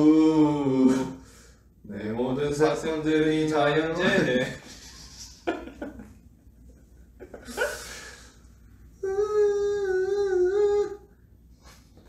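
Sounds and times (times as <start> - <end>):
man humming: 0.0 - 1.2, 8.9 - 11.8.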